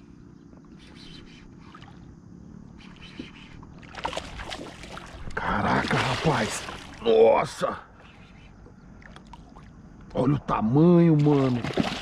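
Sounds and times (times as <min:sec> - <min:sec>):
fish splashing at water surface: 0:03.8 - 0:07.0, 0:11.2 - 0:12.0.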